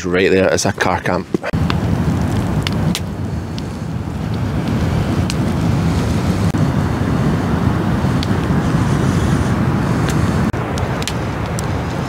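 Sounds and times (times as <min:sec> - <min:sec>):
wind buffeting microphone: 0:00.4 - 0:12.0
wood fire crackling: 0:00.8 - 0:12.0.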